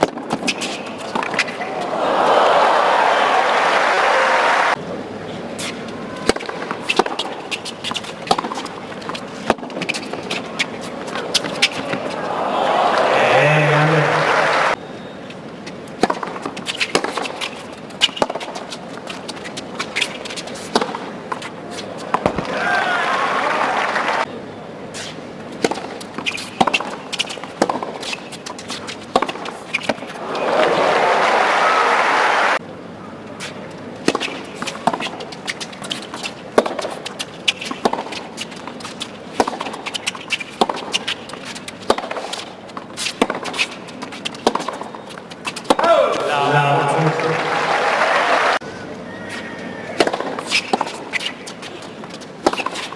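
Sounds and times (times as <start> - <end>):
racket hitting tennis ball: 0.0 - 1.8, 5.6 - 12.3, 16.0 - 22.6, 25.0 - 30.2, 34.0 - 46.4, 50.0 - 52.9
low crowd noise: 0.1 - 52.9.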